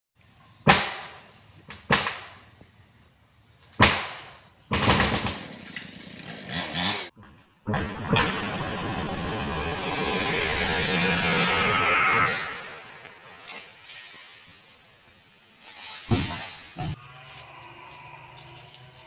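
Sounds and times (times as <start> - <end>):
chainsaw running: 5.8 - 7.1.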